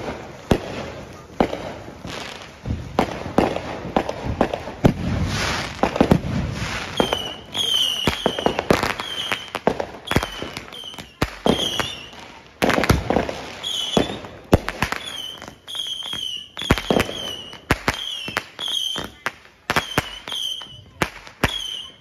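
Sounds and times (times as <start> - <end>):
firework bangs: 0.0 - 22.0
firework whistles: 0.0 - 22.0.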